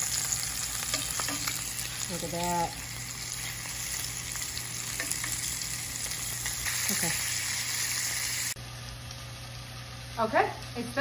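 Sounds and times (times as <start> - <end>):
fish sizzling in oil: 0.0 - 11.0
tongs clicking against pan: 0.8 - 1.6.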